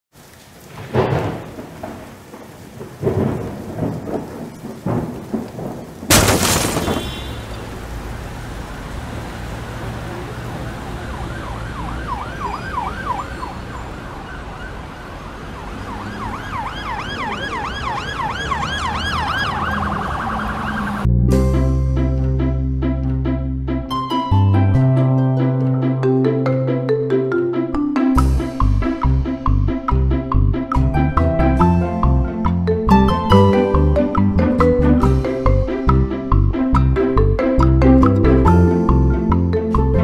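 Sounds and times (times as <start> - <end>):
heavy crashes and rumbling: 0.8 - 8.4
emergency vehicle siren yelping: 10.3 - 21.1
plucked string music: 21.1 - 40.0.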